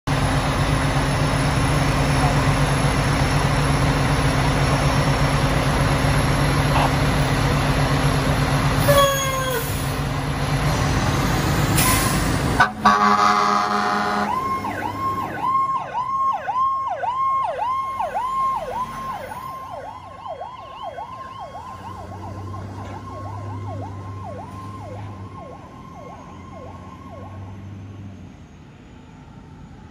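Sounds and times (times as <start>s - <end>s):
diesel engine rumbling: 0.1s - 29.9s
loud horn blast: 12.6s - 14.5s
siren chirp: 12.6s - 27.7s
siren yelping: 12.8s - 27.5s.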